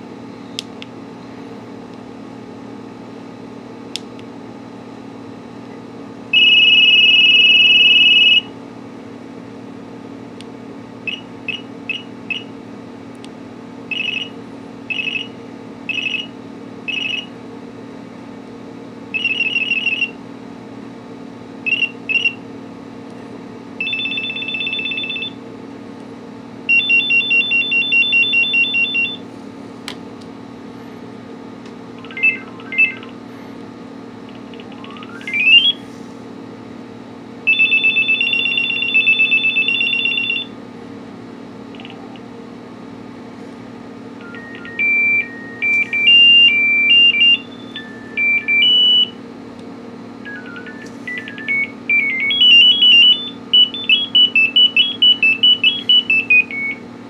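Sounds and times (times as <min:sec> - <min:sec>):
phone ringtone beeping patterns: 0:23.8 - 0:25.3, 0:26.7 - 0:29.2, 0:32.0 - 0:33.1, 0:34.5 - 0:35.8, 0:37.5 - 0:40.5, 0:44.2 - 0:49.1, 0:50.3 - 0:56.8.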